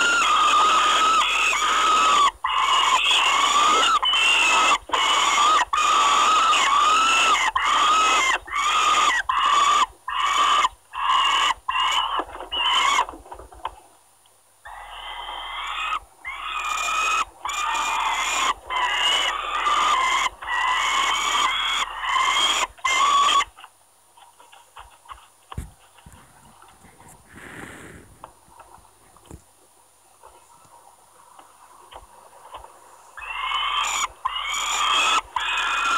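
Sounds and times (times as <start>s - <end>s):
young falcons screaming: 0.0s - 13.0s, 14.7s - 23.5s, 33.2s - 35.9s
faint scratching in nest: 24.3s - 29.4s.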